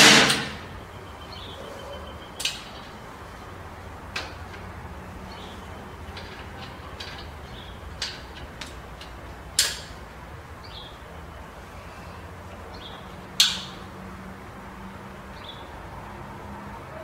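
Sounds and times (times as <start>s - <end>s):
air rifle shots: 0.0s - 0.8s.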